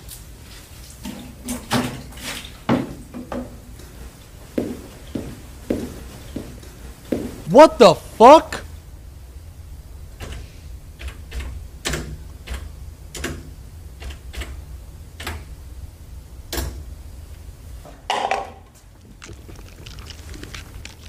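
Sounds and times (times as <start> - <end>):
paper cup dropping clatter: 18.1 - 18.6.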